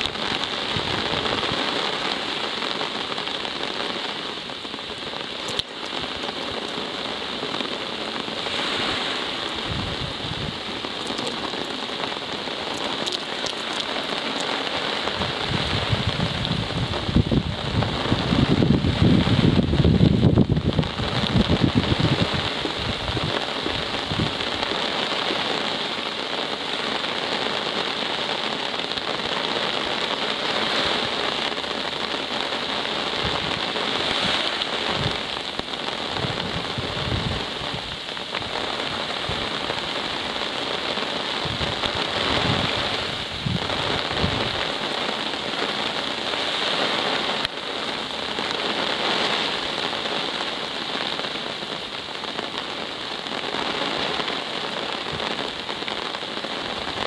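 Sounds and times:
wind buffeting microphone: 0.0s - 2.4s, 4.6s - 25.4s, 32.9s - 47.4s
steady rain falling: 0.0s - 57.0s.

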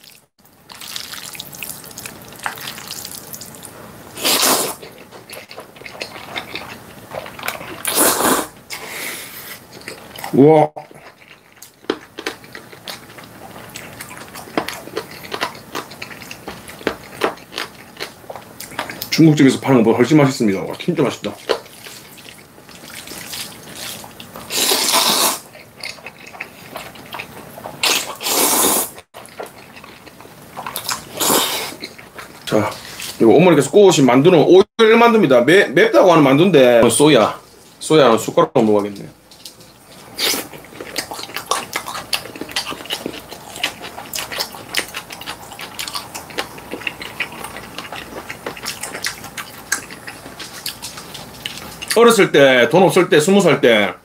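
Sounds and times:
wet chewing: 0.0s - 8.8s, 9.4s - 19.6s, 20.5s - 33.2s, 38.8s - 52.0s
noodle slurp: 0.8s - 10.3s, 21.4s - 29.8s, 30.6s - 32.0s
person slurping noodles: 4.1s - 5.0s, 7.7s - 9.6s, 23.1s - 25.5s, 27.8s - 29.0s, 31.0s - 31.8s.

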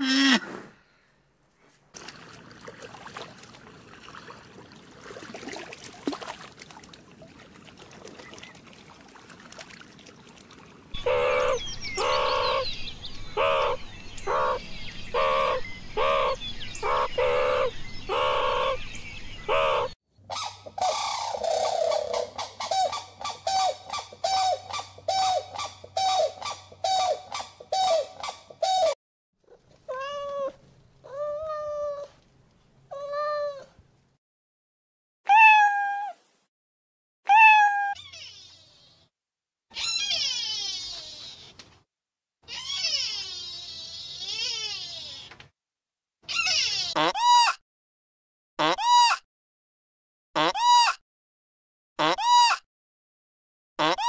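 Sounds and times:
short high animal calls: 0.0s - 0.6s, 42.5s - 45.3s
meerkat calling: 11.0s - 12.6s, 37.3s - 38.9s, 39.7s - 41.5s, 42.5s - 45.3s, 46.3s - 47.5s
cat meowing: 29.9s - 32.1s, 32.9s - 33.7s, 35.3s - 36.2s, 37.3s - 38.4s.

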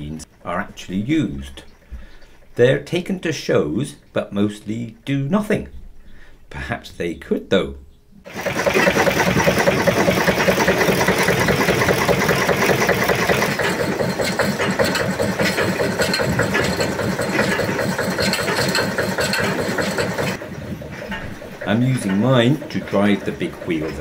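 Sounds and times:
stationary diesel engine running: 8.3s - 24.0s.

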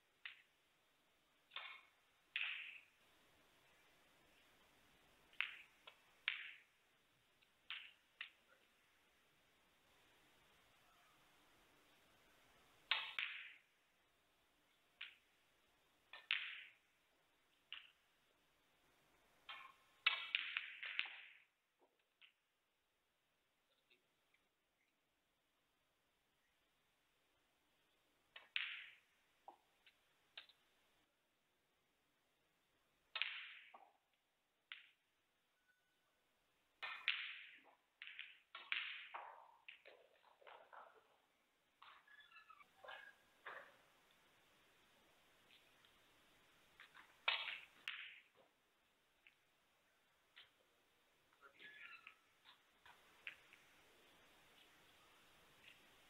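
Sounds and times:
snooker balls clacking: 5.1s - 6.8s, 12.6s - 13.7s, 16.1s - 16.9s, 19.4s - 21.4s, 28.4s - 30.6s, 36.8s - 44.3s, 46.7s - 48.6s.

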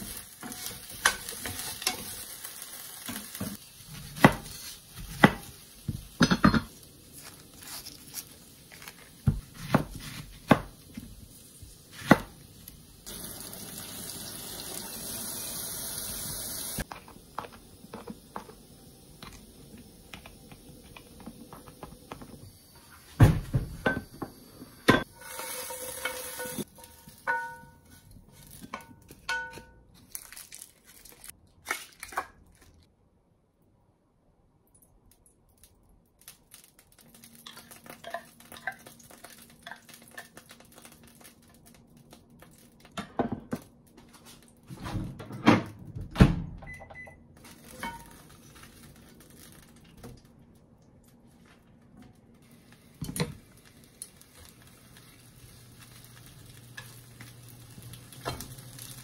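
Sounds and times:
potatoes frying in a pan: 0.0s - 22.7s, 24.0s - 28.7s, 36.5s - 41.7s, 47.4s - 49.9s, 52.4s - 59.0s.

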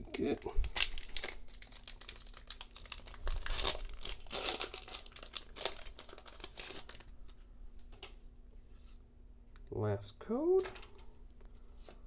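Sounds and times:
foil wrapper crinkling and tearing: 0.2s - 7.2s.

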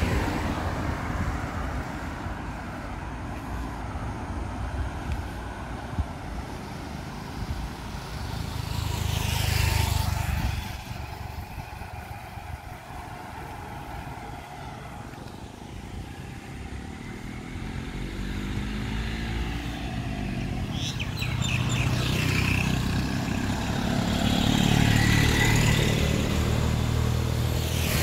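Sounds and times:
background traffic: 0.0s - 28.0s
engine approaching: 4.8s - 28.0s
vehicle passing close by: 5.2s - 28.0s.

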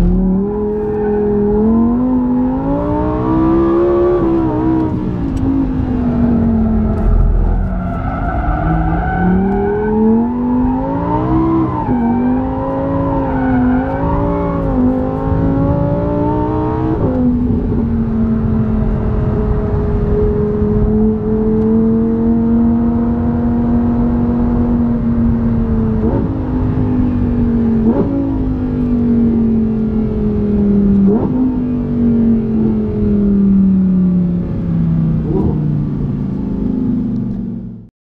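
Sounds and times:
tyre and road rumble: 0.0s - 12.8s
car engine from inside the cabin: 0.0s - 37.9s.

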